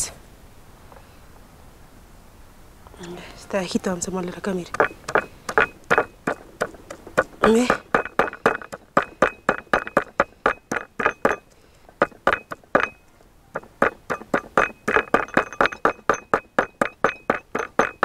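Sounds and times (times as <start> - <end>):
stone pounding garlic knocks: 4.7 - 18.0.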